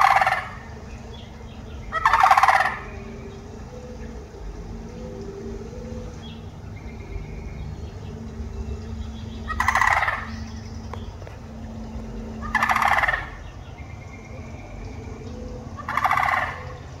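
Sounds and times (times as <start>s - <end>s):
crane rattling call: 0.0s - 17.0s
low background hum: 0.0s - 17.0s.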